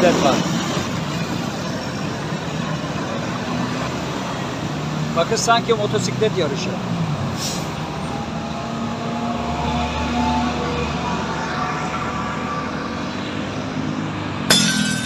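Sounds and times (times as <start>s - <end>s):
road traffic passing: 0.0s - 15.0s.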